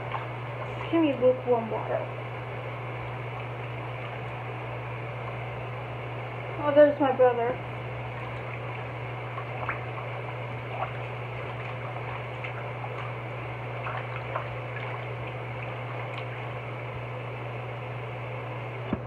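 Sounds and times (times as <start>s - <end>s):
sink tap running: 7.7s - 17.0s.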